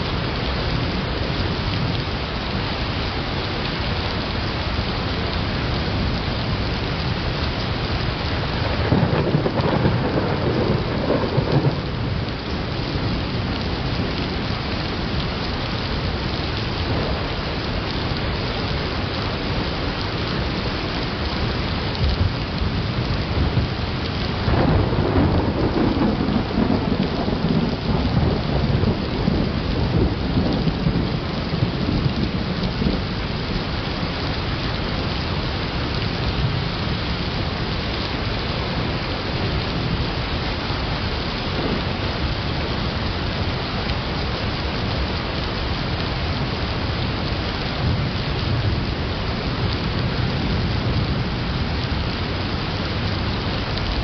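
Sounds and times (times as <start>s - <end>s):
steady rain: 0.0s - 54.0s
thunder rolling: 8.5s - 12.3s, 24.3s - 33.1s.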